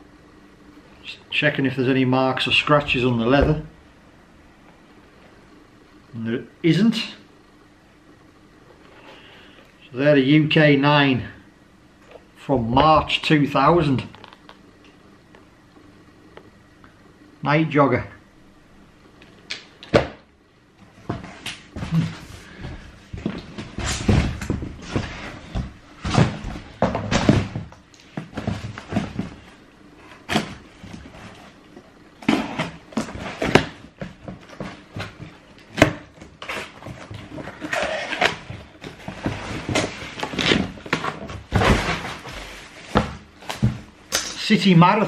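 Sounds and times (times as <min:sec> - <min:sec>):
shoe boxes knocking and thumping: 0:21.0 - 0:29.6.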